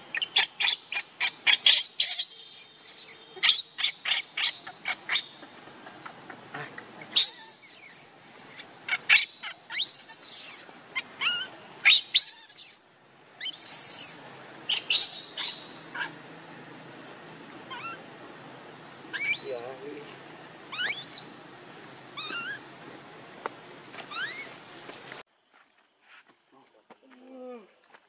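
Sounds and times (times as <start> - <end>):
baby monkey screaming: 0.1 - 5.3, 7.1 - 12.8, 13.4 - 16.2, 17.7 - 18.0, 19.1 - 19.5, 20.7 - 21.3, 22.2 - 22.6, 24.1 - 24.5.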